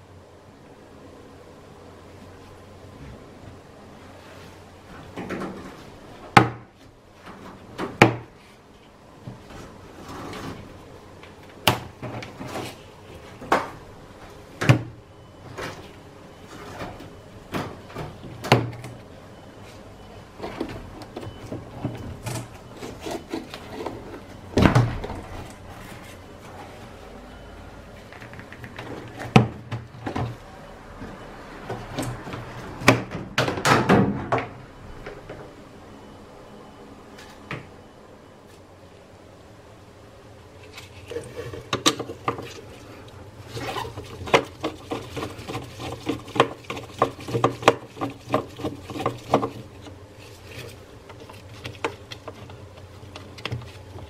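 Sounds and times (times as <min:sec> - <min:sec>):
plastic rubbing and scraping: 0:40.6 - 0:54.0.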